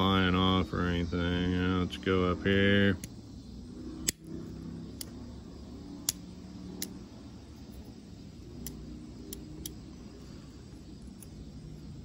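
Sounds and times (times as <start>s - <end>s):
low hum: 0.0s - 12.0s
wire cutters snapping wire: 4.0s - 4.3s, 8.5s - 9.8s
metallic tool clicks: 6.0s - 7.0s, 8.6s - 9.8s.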